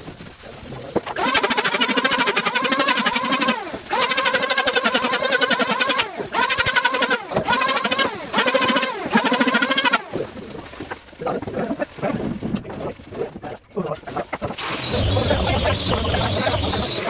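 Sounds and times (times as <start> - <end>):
motor spinning down: 1.2 - 10.2, 14.6 - 17.0
electric hand planer running: 14.6 - 17.0.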